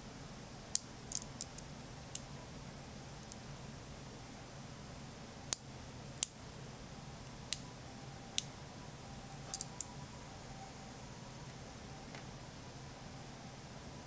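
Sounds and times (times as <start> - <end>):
magnet balls clicking together: 0.7 - 2.3, 3.2 - 3.4, 9.4 - 9.9.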